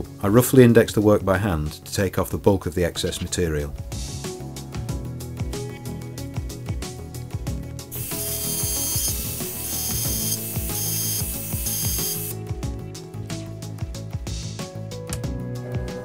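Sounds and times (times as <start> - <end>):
end mill cutting aluminium: 8.0 - 12.3.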